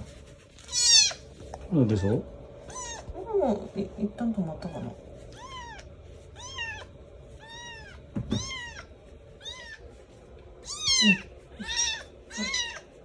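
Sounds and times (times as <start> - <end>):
kitten mewing: 0.7 - 1.2, 2.0 - 3.2, 5.3 - 9.8, 10.6 - 12.9.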